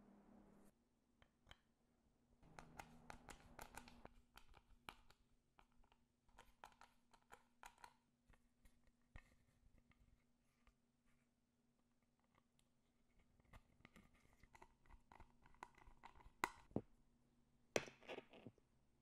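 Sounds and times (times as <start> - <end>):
faint steady hum: 0.0 - 0.7.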